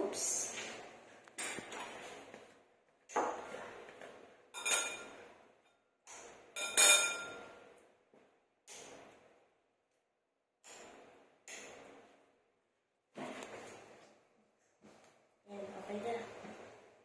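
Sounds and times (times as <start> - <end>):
ceramic bowl clinking: 4.6 - 5.2, 6.6 - 7.4.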